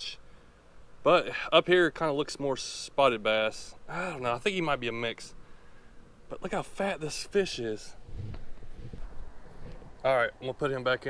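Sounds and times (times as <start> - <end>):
microphone handling rumble: 8.0 - 10.0.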